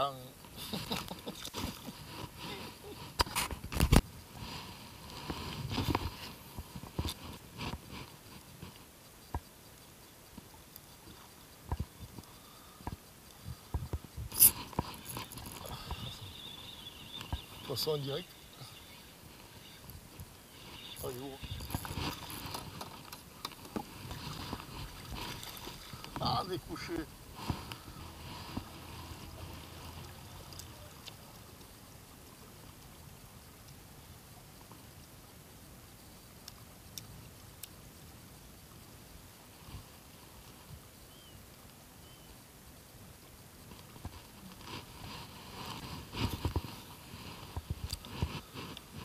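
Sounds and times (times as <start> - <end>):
light ticks: 5.0 - 26.3, 27.4 - 35.2, 36.1 - 37.9
fishing reel whirring: 13.8 - 23.2
water lapping against boat: 18.4 - 31.7.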